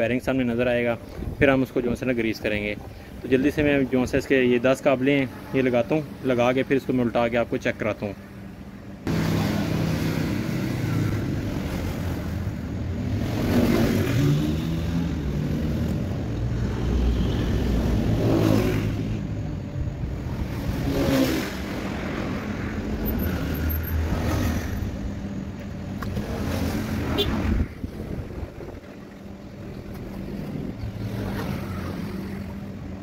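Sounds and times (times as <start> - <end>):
engine revving: 9.0 - 19.4, 20.1 - 25.3, 25.9 - 28.6, 30.2 - 32.6.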